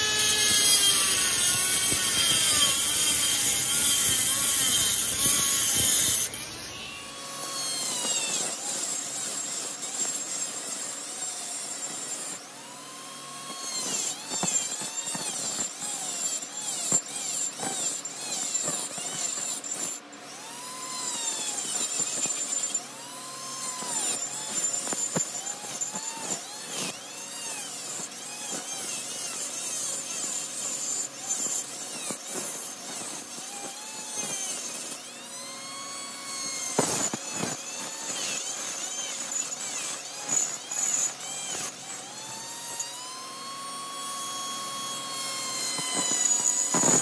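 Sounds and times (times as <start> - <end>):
rotary tool grinding metal: 0.0 - 47.0.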